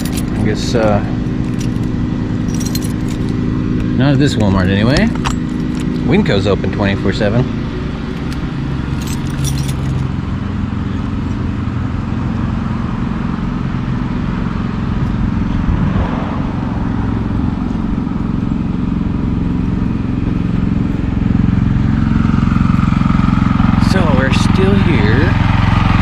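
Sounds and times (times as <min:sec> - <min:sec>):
light metallic jingles: 0:00.0 - 0:06.6, 0:08.1 - 0:10.3
low engine-like hum: 0:00.0 - 0:26.0.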